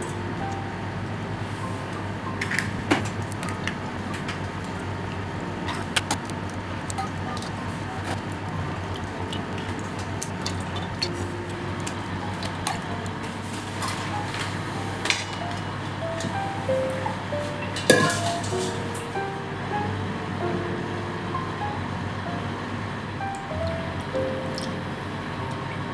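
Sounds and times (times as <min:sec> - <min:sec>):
steady low hum: 0:00.0 - 0:25.9
steel bowl clinking: 0:06.9 - 0:14.4, 0:17.6 - 0:18.9.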